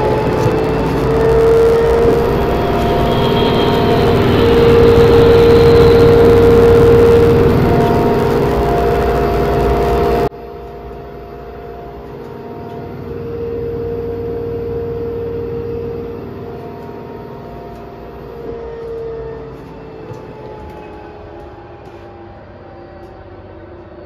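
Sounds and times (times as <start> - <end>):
dull motor whine: 0.0 - 24.0
washing machine spin cycle whir: 0.0 - 24.0.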